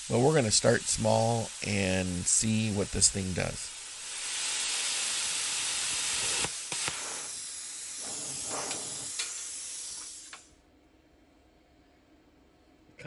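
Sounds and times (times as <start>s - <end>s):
plasma cutter hissing: 0.0s - 10.5s
light clicks of torch: 5.9s - 7.3s, 8.0s - 9.4s.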